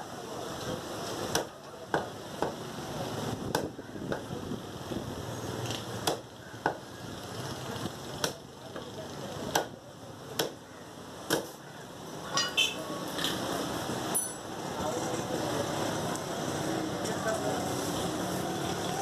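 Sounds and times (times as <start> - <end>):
cleaver chopping meat on wood: 1.3 - 2.6, 3.4 - 4.4, 6.0 - 6.9, 8.2 - 11.6.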